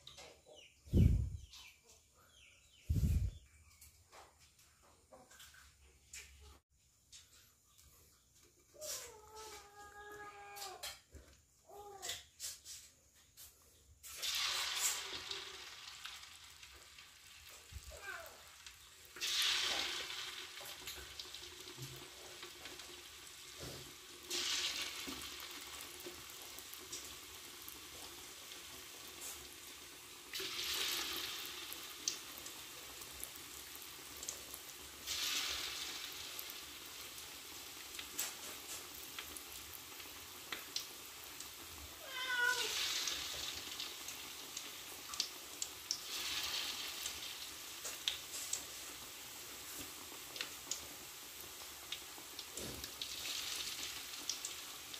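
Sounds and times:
meat deep-frying in hot oil: 0:13.3 - 0:54.9.

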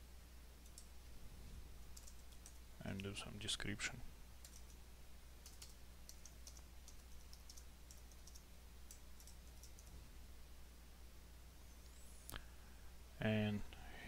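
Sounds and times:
steady low hum: 0:00.0 - 0:14.0
typing on computer keyboard: 0:02.0 - 0:02.6, 0:04.4 - 0:04.8, 0:05.4 - 0:09.9.

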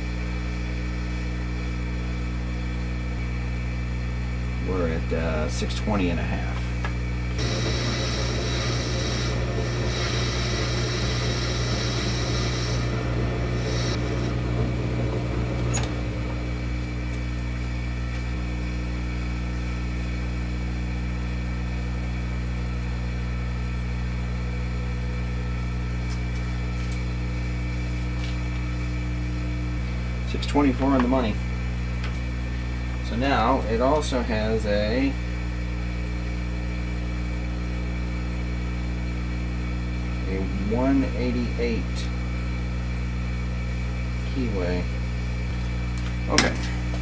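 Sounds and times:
cutting tool hissing: 0:07.4 - 0:14.4
lathe motor humming: 0:07.4 - 0:18.3.

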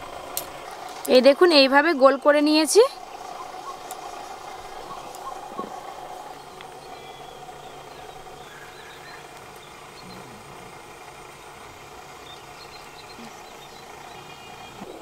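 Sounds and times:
outdoor background hum: 0:00.0 - 0:15.0
faint bird chirps: 0:03.1 - 0:10.5.

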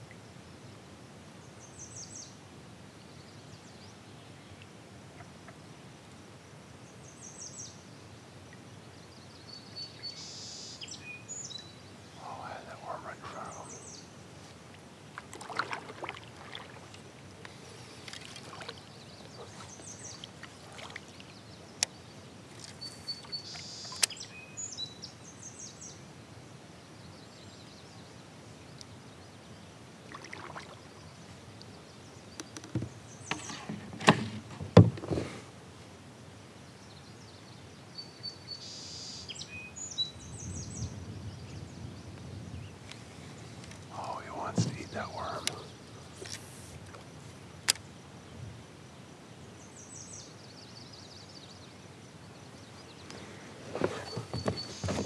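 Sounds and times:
bird calls: 0:09.6 - 0:14.1, 0:17.7 - 0:25.8, 0:43.9 - 0:46.5, 0:52.5 - 0:55.0
knocks and clicks from kayak: 0:32.4 - 0:35.3, 0:44.5 - 0:44.8, 0:53.7 - 0:55.0.

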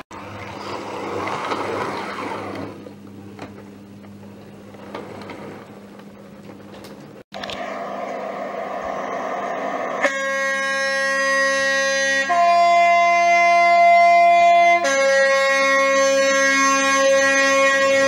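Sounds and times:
two-tone train horn blast: 0:09.9 - 0:18.0.

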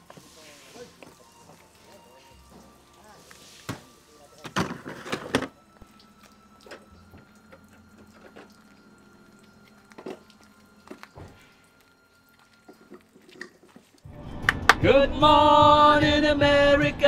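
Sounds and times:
water running from a hose: 0:00.0 - 0:04.9, 0:05.8 - 0:14.1.

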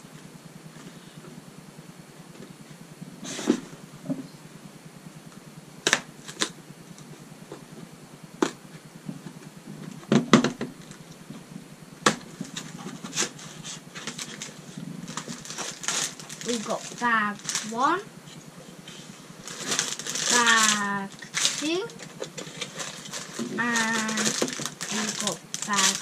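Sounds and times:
taps and knocks on cardboard box: 0:10.0 - 0:10.8.

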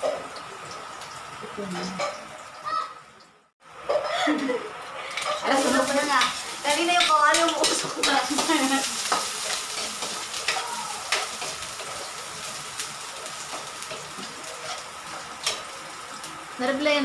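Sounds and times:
garlic sizzling in a wok: 0:03.6 - 0:17.0
metal spatula scraping a pan: 0:13.4 - 0:15.7.

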